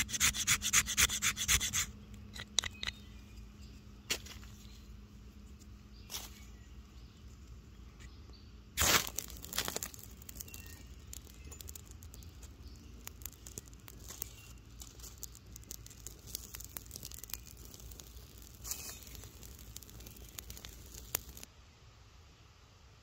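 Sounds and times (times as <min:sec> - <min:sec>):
tinder crackling: 0:08.7 - 0:21.5
loud rush of flame: 0:12.8 - 0:21.5.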